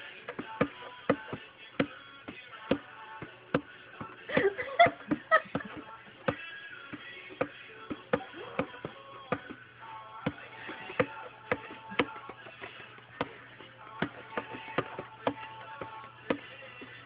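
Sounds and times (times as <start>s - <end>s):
recorded music: 0.0s - 17.0s.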